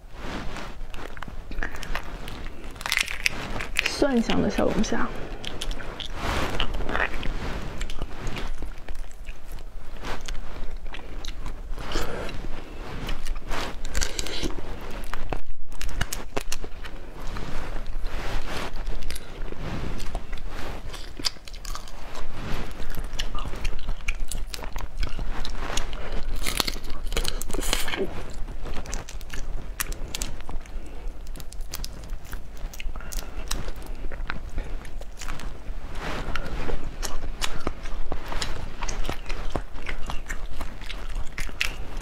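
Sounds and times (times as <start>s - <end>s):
biting and chewing: 0.5s - 42.0s
crayfish shells cracking: 1.5s - 4.0s, 26.3s - 27.9s.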